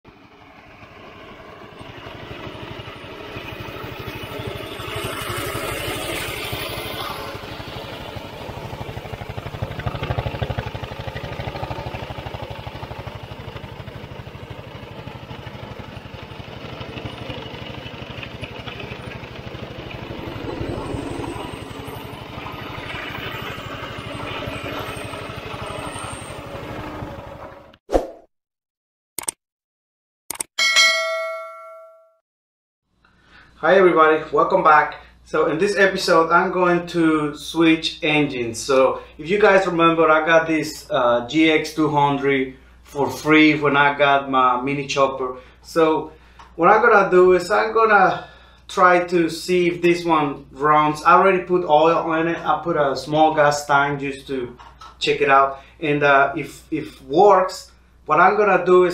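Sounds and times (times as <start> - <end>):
small gasoline engine running: 0.1 - 27.7.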